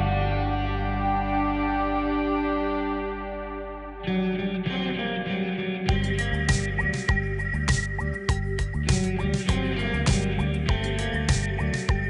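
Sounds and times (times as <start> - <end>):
music with steady beat: 5.8 - 12.0.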